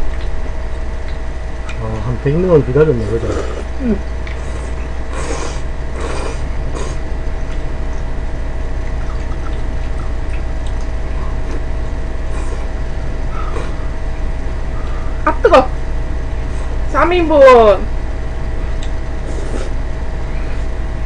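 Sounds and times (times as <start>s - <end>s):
steady low hum: 0.0s - 21.0s
slurping and chewing noodles: 3.1s - 7.6s, 9.0s - 13.9s, 18.8s - 19.8s.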